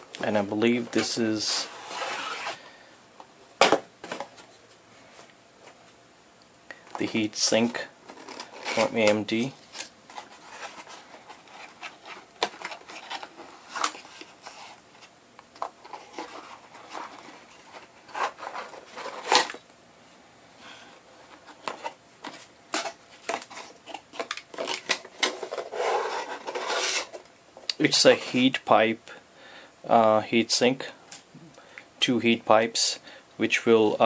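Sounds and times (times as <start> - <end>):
cardboard box scraping and rustling: 1.6 - 2.6, 25.4 - 27.2
cardboard sliding rub: 1.6 - 2.6, 25.5 - 27.2.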